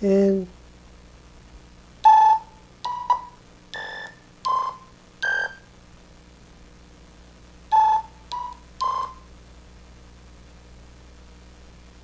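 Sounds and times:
electronic beep notes from small speaker: 7.7s - 9.2s.

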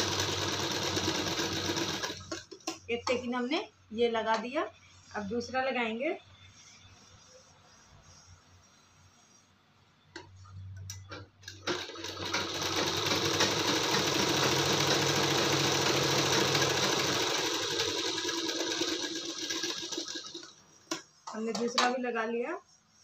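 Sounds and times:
sewing machine stitching: 0.0s - 2.7s, 11.4s - 20.5s.

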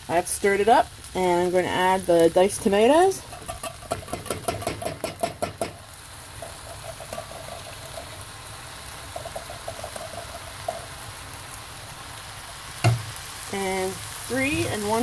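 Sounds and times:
food sizzling in a pot: 0.0s - 15.0s.

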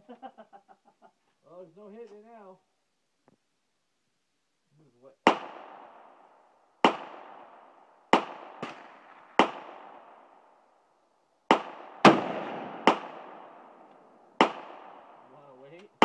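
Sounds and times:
gunshots with echo: 5.2s - 10.4s, 11.5s - 16.0s.

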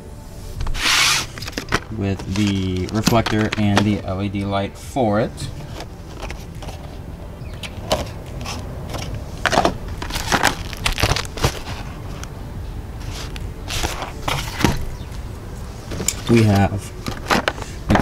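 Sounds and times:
plastic packaging crinkling: 9.5s - 12.3s.

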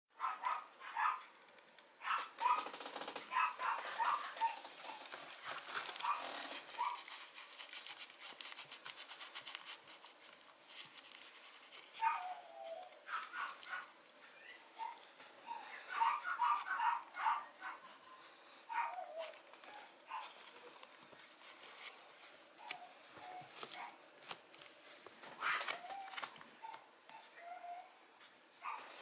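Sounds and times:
puppy yipping and barking: 2.0s - 2.7s, 3.3s - 5.0s, 6.0s - 7.1s, 12.0s - 17.8s, 18.7s - 20.3s
puppy whining: 12.0s - 17.8s, 18.7s - 20.8s, 22.6s - 24.0s, 25.4s - 28.9s.

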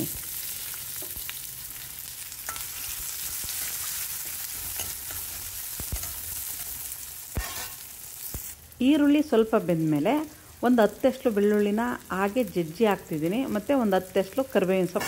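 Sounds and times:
onions sizzling in oil: 0.0s - 15.0s
ladle scraping a pan: 7.4s - 7.8s.

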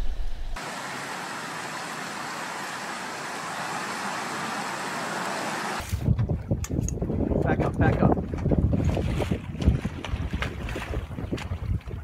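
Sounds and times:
low rumble: 0.0s - 0.6s
river water rushing: 0.6s - 5.8s.

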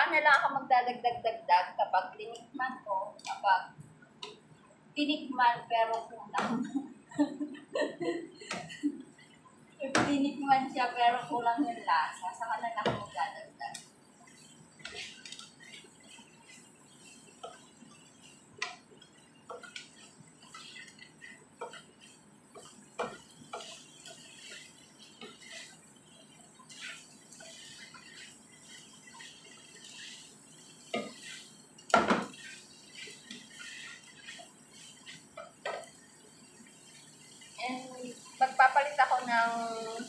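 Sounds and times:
wooden spatula scraping a pan: 9.8s - 40.0s.

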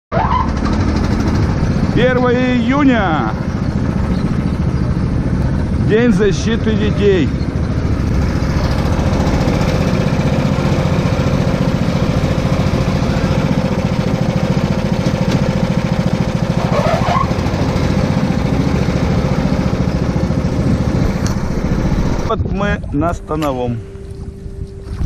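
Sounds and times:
small vehicle engine running: 0.2s - 22.3s.

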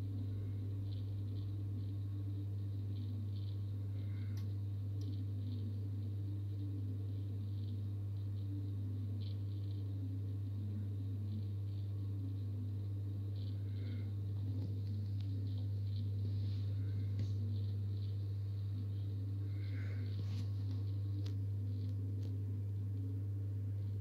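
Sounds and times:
aquarium pump humming: 0.0s - 24.0s.

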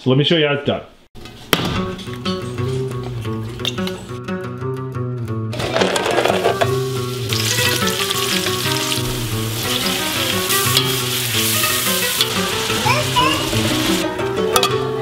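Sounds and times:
food sizzling in hot oil: 5.7s - 14.0s.

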